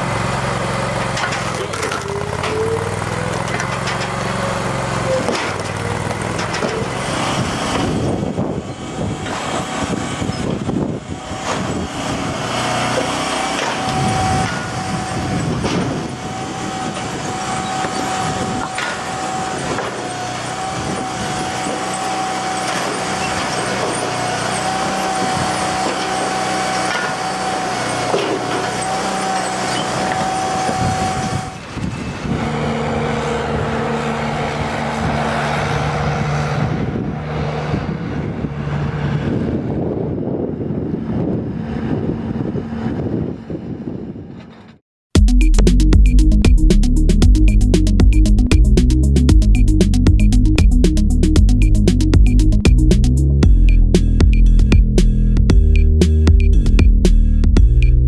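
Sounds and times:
wood splitter running: 0:00.0 - 0:08.0, 0:11.3 - 0:31.5
steady machine whine: 0:07.6 - 0:35.8, 0:45.2 - 0:58.0.

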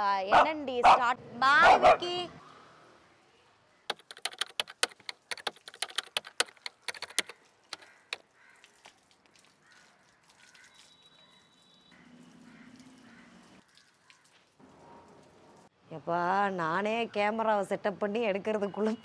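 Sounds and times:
hose water splashing: 0:07.3 - 0:15.7.

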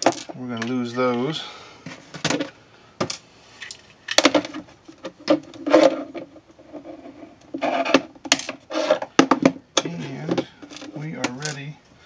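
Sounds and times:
tools scraping on wire: 0:05.2 - 0:09.1.

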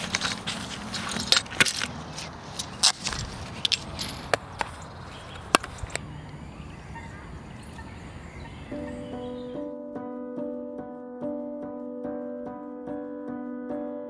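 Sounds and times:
steady background noise: 0:00.0 - 0:09.1
fishing tackle clicks and knocks: 0:02.6 - 0:04.8, 0:05.4 - 0:06.0.

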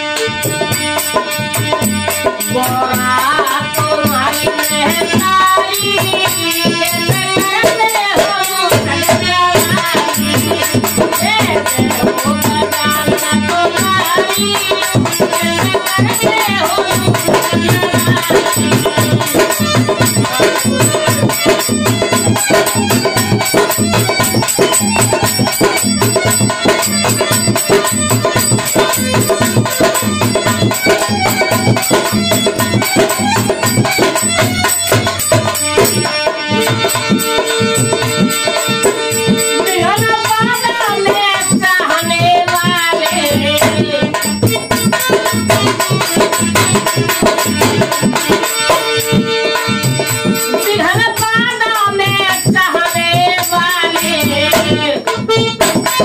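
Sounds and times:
dholak drum beating: 0:00.0 - 0:56.0
harmonium melody: 0:00.0 - 0:56.0.

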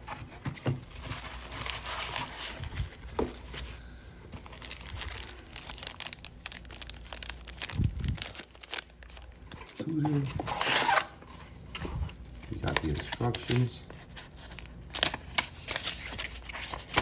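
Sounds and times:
tissue paper crumpling: 0:00.9 - 0:03.7, 0:04.4 - 0:09.4
plastic bag crinkling: 0:00.9 - 0:10.4, 0:12.0 - 0:13.8.

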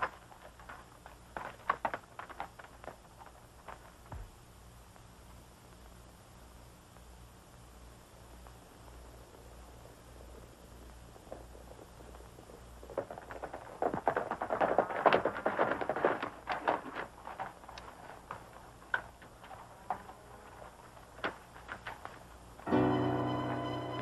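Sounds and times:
horse hoofbeats: 0:00.0 - 0:04.4, 0:09.8 - 0:22.2
music: 0:22.6 - 0:24.0.

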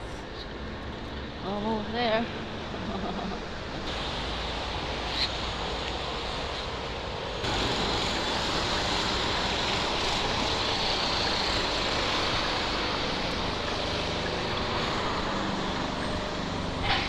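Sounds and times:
road traffic: 0:00.0 - 0:17.0
wind: 0:00.0 - 0:17.0.

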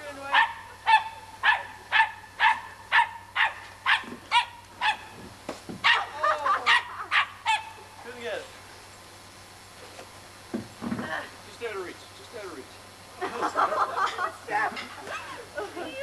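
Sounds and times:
dog barking: 0:00.3 - 0:05.2, 0:05.8 - 0:07.8.

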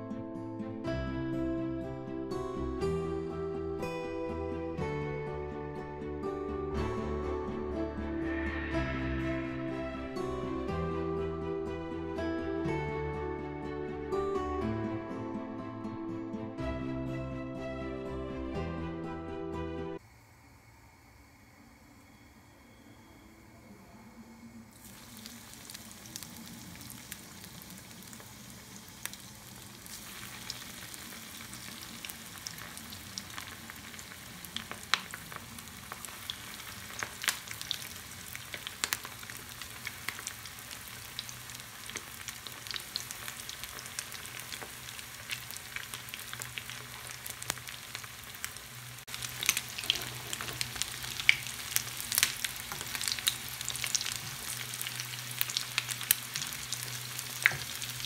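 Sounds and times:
food deep-frying in oil: 0:24.7 - 0:58.0.

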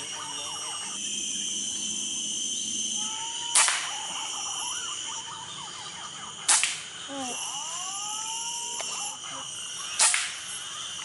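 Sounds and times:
high insect drone: 0:00.0 - 0:11.0
whistled bird calls: 0:01.6 - 0:08.7
air rifle shots: 0:03.5 - 0:03.9, 0:06.5 - 0:06.9, 0:10.0 - 0:10.4.

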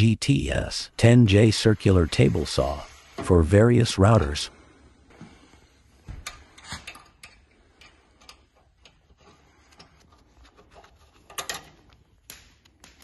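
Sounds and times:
metal parts clicking and knocking: 0:06.2 - 0:12.0.

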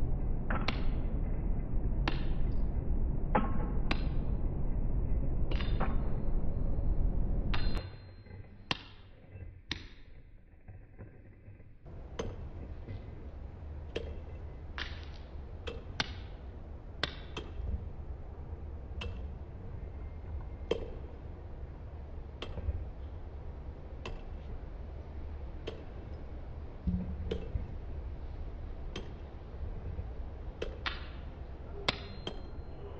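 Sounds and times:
low steady rumble: 0:00.0 - 0:07.8, 0:11.9 - 0:32.9.

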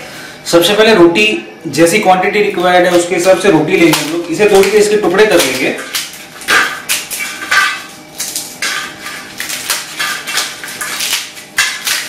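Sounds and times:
dry bread cracking: 0:02.6 - 0:12.0.

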